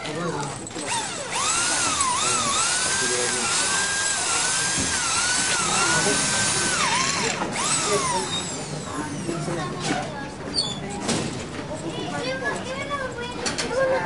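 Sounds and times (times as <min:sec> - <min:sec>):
electric drill whining: 0:00.8 - 0:09.3.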